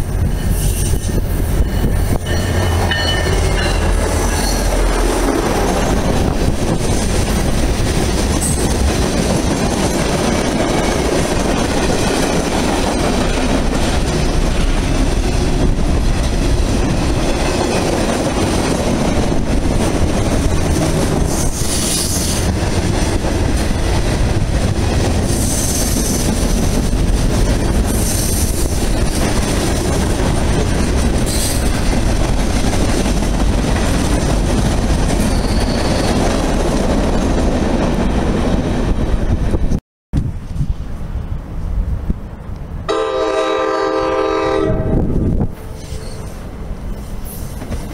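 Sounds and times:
freight train rumbling past: 0.0 - 47.9
wheel squeals: 35.2 - 36.3.

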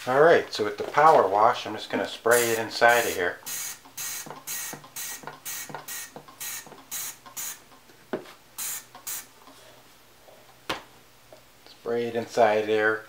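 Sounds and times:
spray bottle hissing squirts: 2.3 - 7.6, 8.6 - 9.3.

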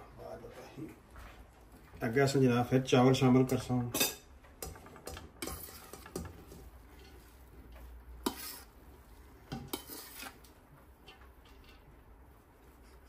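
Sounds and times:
spoon scraping a cooking pot: 4.0 - 7.4, 8.1 - 8.8, 9.5 - 11.9.

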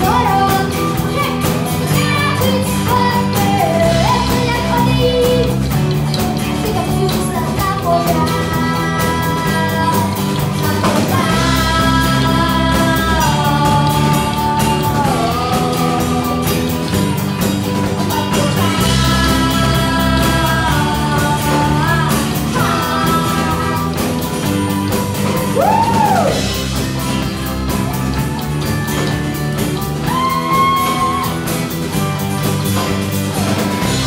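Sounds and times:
boy singing into a microphone: 0.0 - 5.6, 6.4 - 16.9, 18.0 - 24.4
acoustic guitar: 0.0 - 34.0
bass guitar: 0.0 - 34.0
drums: 0.0 - 34.0
electric guitar: 0.0 - 34.0.

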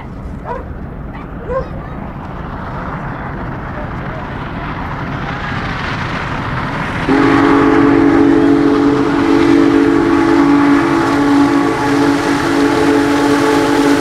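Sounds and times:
locomotive rumble: 0.0 - 14.0
steam locomotive whistle blast: 7.1 - 14.0.

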